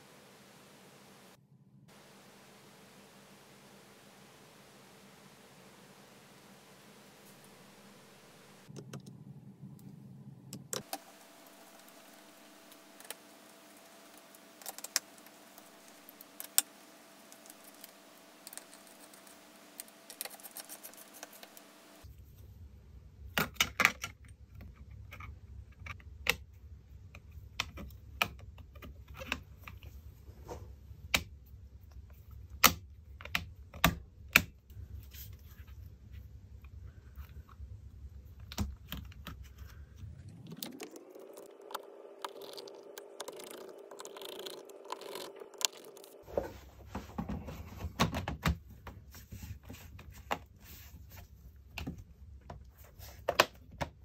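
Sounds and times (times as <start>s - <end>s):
faint steady hum: 0.0s - 54.0s
rising tone: 40.0s - 46.3s.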